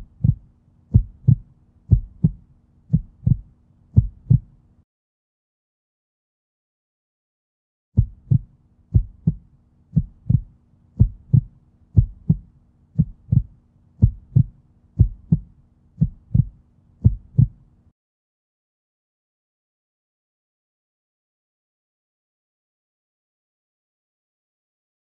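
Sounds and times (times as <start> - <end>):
heartbeat thumps: 0.0 - 4.5, 8.0 - 17.6
steady low hum: 0.0 - 4.8, 8.0 - 17.9.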